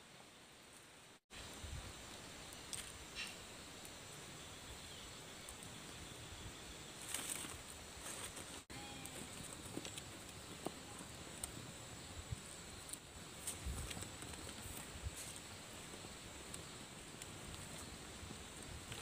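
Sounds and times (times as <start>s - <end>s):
dry twigs clicking and rustling: 2.5s - 3.0s, 7.0s - 11.6s, 12.7s - 19.0s.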